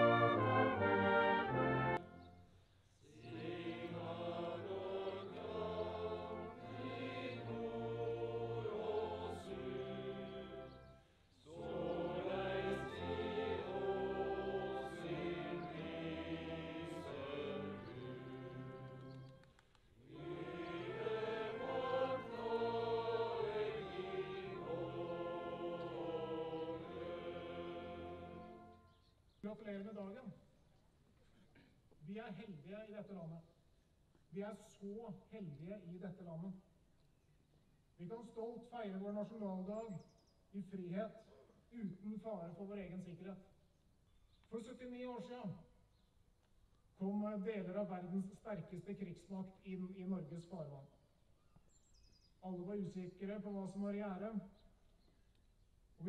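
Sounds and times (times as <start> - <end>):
men's choir singing: 0.0 - 2.0, 3.2 - 19.4, 20.0 - 28.9.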